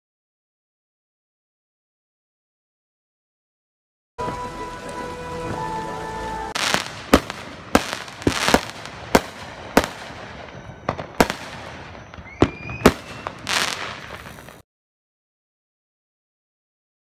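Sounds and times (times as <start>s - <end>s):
fireworks crackling hiss: 4.2s - 14.6s
fireworks whistling: 4.2s - 14.6s
fireworks bangs: 6.5s - 14.6s.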